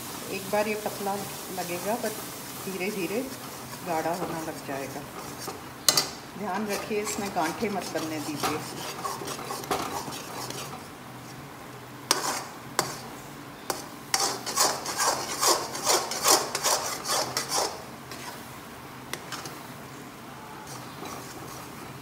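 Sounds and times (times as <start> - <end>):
metal spatula scraping pan: 2.9 - 10.9, 12.1 - 13.1, 13.7 - 18.5, 20.6 - 22.0.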